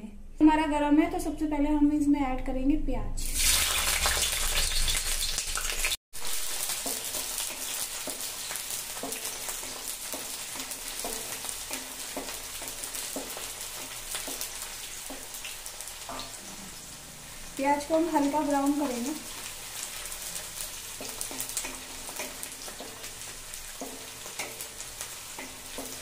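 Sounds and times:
onions sizzling in hot oil: 3.2s - 26.0s
wooden spatula scraping a pan: 19.3s - 26.0s.

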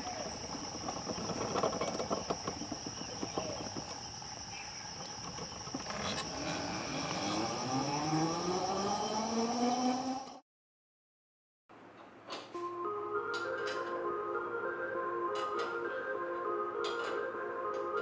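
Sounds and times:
clicking and rattling: 0.1s - 6.3s
electric motor whine rising: 0.2s - 10.4s.

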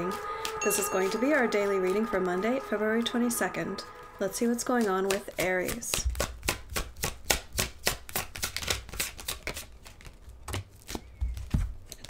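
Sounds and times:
cards being shuffled: 5.0s - 12.0s.

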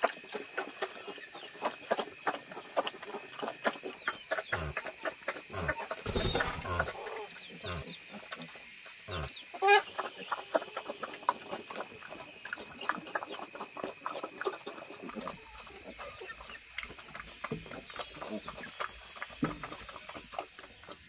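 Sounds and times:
animal call: 9.1s - 10.0s.

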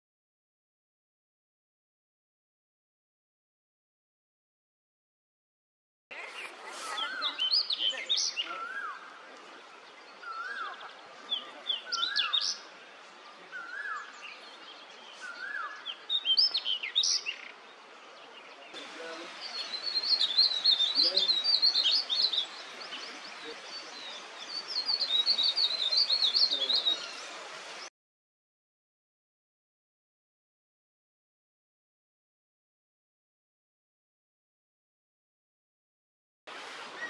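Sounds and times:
bird twittering warble: 18.5s - 27.3s
bird singing short phrase: 19.1s - 27.3s.

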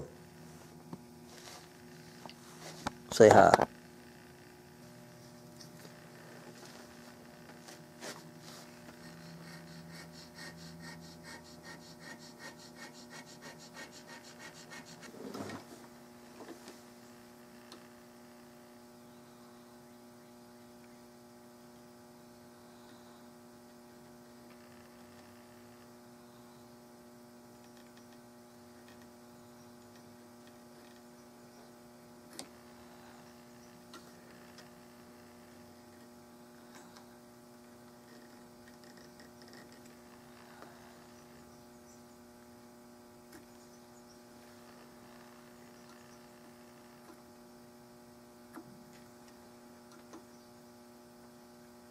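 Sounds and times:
steady electrical hum: 0.0s - 51.9s
checkering tool scratching wood: 8.0s - 15.5s.

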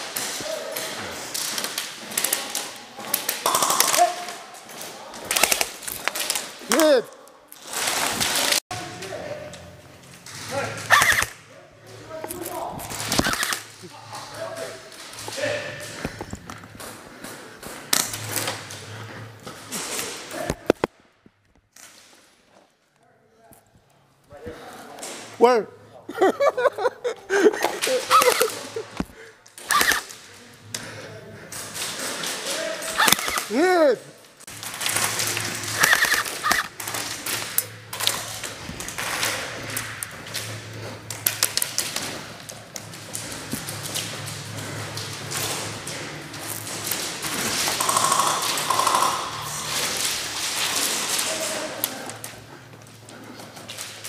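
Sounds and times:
airsoft guns firing: 3.3s - 4.4s, 5.2s - 6.5s, 29.6s - 30.2s, 34.6s - 40.0s, 46.7s - 51.3s
airsoft gun cracks: 47.6s - 49.9s.

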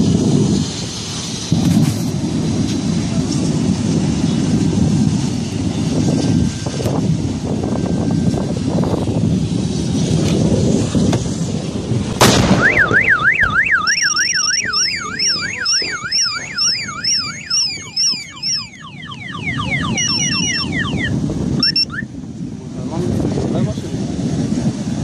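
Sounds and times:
gas cylinder explosion bang: 12.1s - 13.6s
car alarm warbling: 12.5s - 22.1s.

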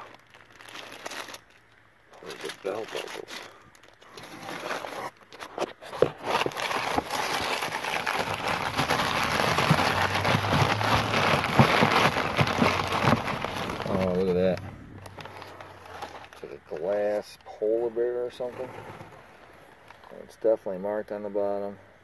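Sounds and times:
newspaper rustling and crackling: 0.0s - 17.4s.

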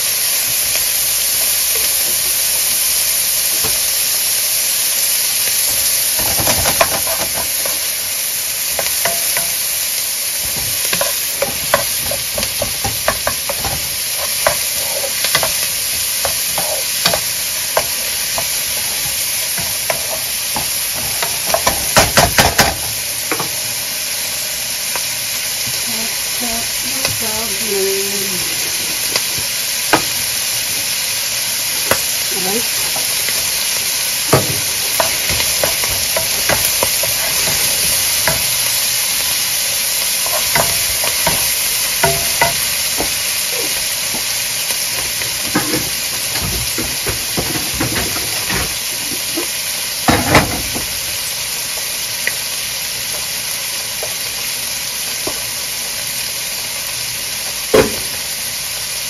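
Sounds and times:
food sizzling in a pan: 0.0s - 59.0s
utensil scraping a pan: 10.4s - 22.7s, 34.3s - 38.7s.

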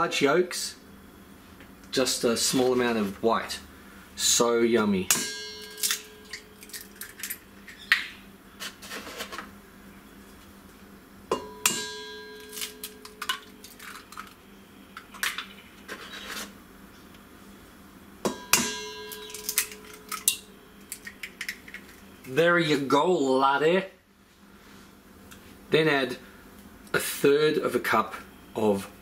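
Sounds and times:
steel bowl ringing: 5.0s - 6.8s, 11.3s - 13.6s, 18.3s - 20.7s
eggs cracking on a steel bowl: 5.1s - 8.1s, 11.4s - 15.6s, 18.3s - 22.4s.

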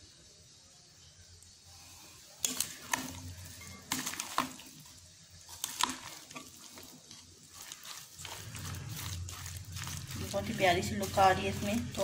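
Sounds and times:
spoon stirring salad in glass bowl: 2.4s - 12.0s.

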